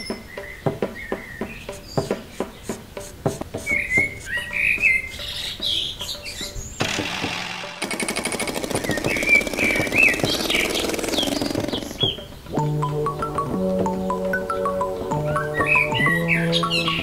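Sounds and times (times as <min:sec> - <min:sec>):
birds chirping: 0:00.0 - 0:17.0
steady hiss: 0:01.1 - 0:05.9.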